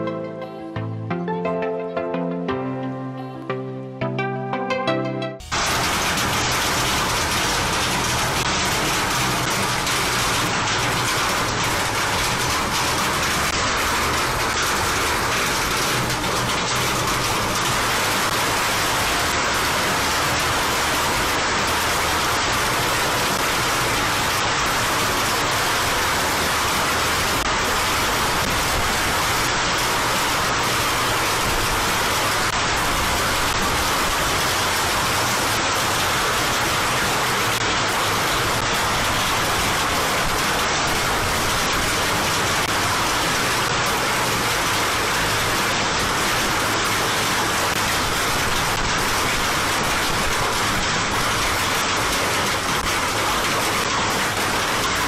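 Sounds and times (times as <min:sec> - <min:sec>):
heavy rain and hail: 0:05.5 - 0:55.0.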